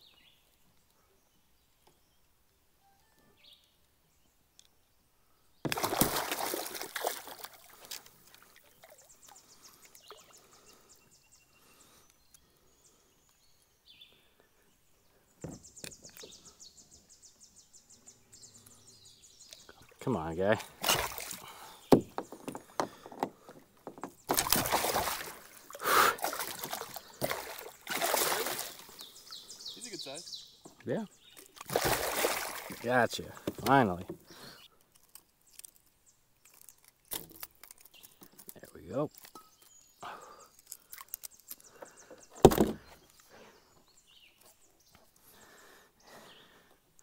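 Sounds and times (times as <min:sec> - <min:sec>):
fish knocking with splash: 0:05.7 - 0:07.5, 0:23.9 - 0:25.4, 0:31.6 - 0:32.8
fish splashing: 0:05.7 - 0:09.0, 0:20.6 - 0:23.5, 0:24.3 - 0:29.0, 0:31.4 - 0:32.8
knocks against kayak hull: 0:21.9 - 0:24.6, 0:42.4 - 0:42.8.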